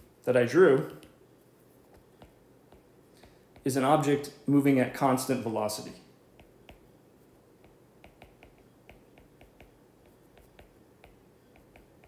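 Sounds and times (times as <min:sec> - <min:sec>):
stylus tapping on glass screen: 0:07.6 - 0:12.0.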